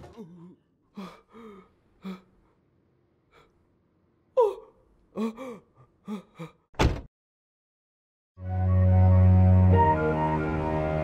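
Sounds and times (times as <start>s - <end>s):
person gasping and whimpering: 0.0s - 2.6s, 4.4s - 6.7s.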